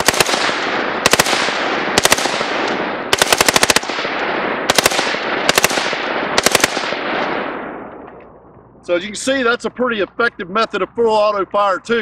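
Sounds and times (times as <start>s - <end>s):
rifle firing rapid bursts: 0.0s - 7.4s.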